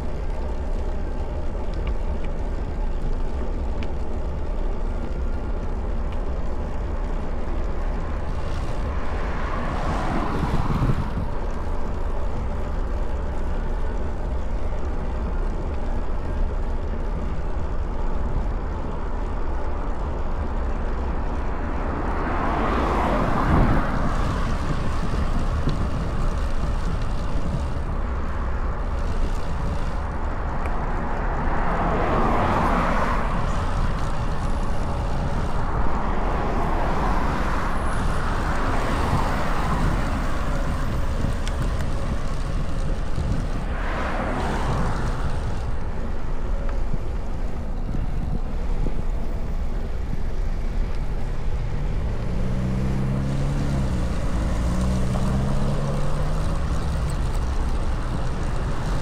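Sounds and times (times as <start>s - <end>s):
wind rumbling on microphone: 0.0s - 59.0s
cars swooshing past: 8.4s - 11.2s, 31.0s - 41.7s, 43.2s - 45.9s.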